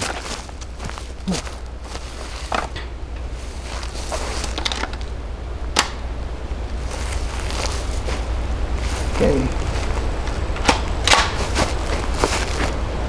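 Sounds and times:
low rumble: 0:00.0 - 0:13.0
gun handling clicks and clacks: 0:10.6 - 0:11.4.

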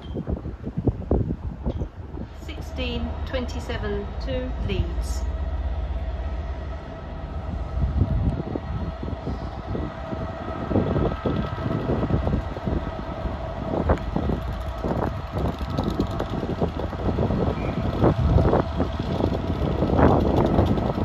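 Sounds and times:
freight train rumbling past: 0:00.0 - 0:21.0.

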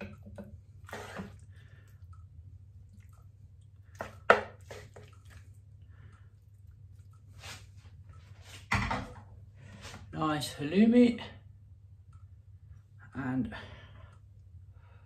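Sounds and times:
low steady hum: 0:00.0 - 0:15.0
spatula scraping a frying pan: 0:00.8 - 0:01.4.

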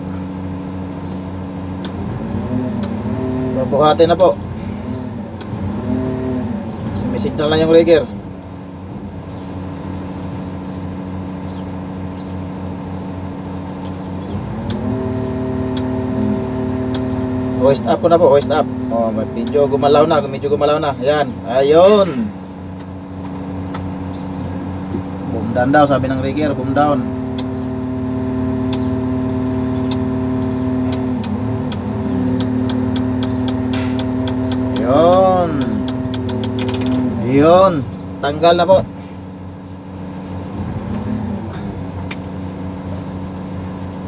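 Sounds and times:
diesel engine revving: 0:00.0 - 0:44.0
sharp clicks: 0:28.7 - 0:28.9, 0:29.8 - 0:37.1.

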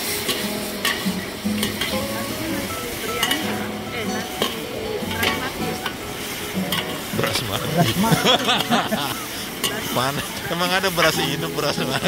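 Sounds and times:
meat sizzling in a wok: 0:00.0 - 0:12.0
metal spatulas scraping wok: 0:00.1 - 0:02.0, 0:06.6 - 0:11.2.

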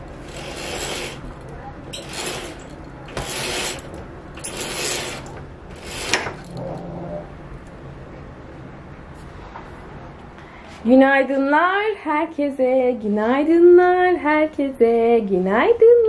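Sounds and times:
window blinds swishing and rattling: 0:00.0 - 0:06.5.

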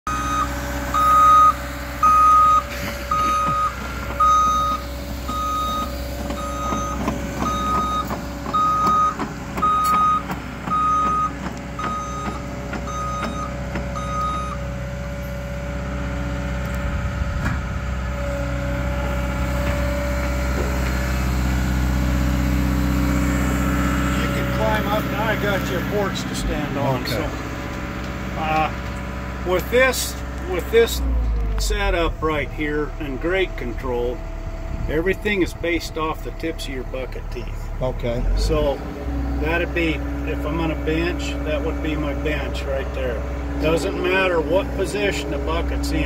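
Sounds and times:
diesel engine running: 0:00.0 - 0:46.0
excavator travel alarm beeping: 0:00.1 - 0:16.0.

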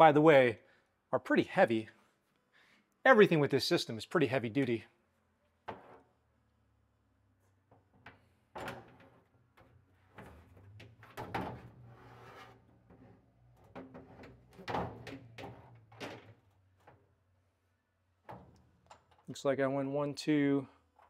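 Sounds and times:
metal scraping: 0:11.4 - 0:13.2
metal shelf clunking: 0:13.6 - 0:16.4.

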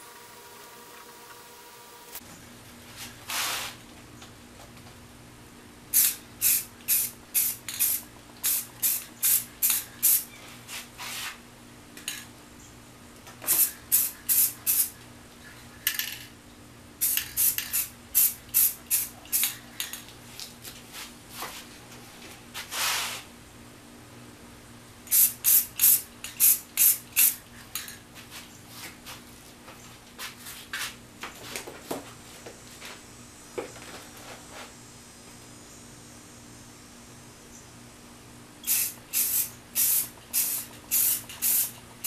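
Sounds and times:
spray paint can hissing: 0:05.9 - 0:10.3, 0:13.5 - 0:15.0, 0:17.0 - 0:19.6, 0:25.1 - 0:27.4, 0:38.6 - 0:41.8.

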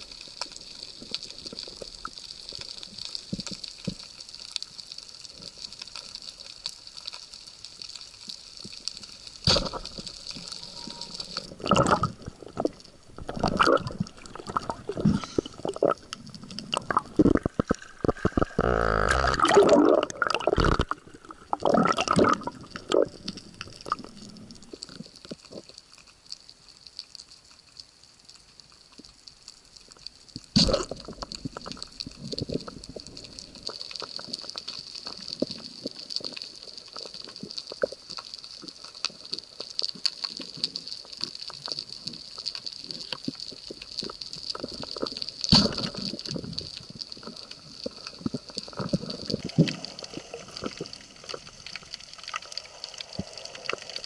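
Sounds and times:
water splashing and sloshing: 0:08.8 - 0:25.7
underwater hiss: 0:13.5 - 0:25.0, 0:45.5 - 0:54.0.

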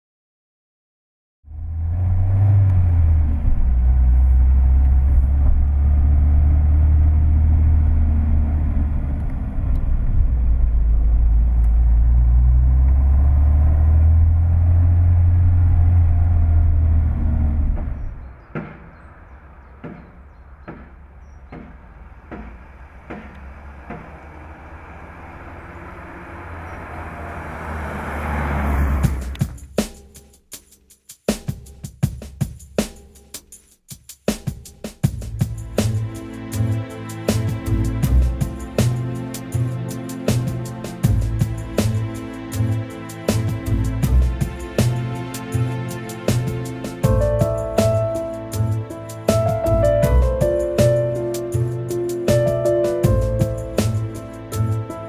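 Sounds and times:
car engine drone from inside: 0:01.5 - 0:29.5
car approaching from roadside: 0:01.5 - 0:29.6, 0:35.2 - 0:55.0.

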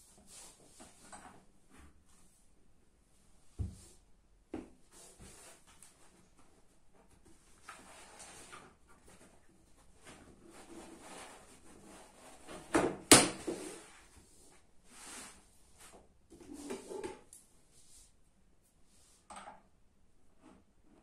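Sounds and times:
fabric rustling and scraping: 0:07.1 - 0:12.7, 0:13.4 - 0:17.3.

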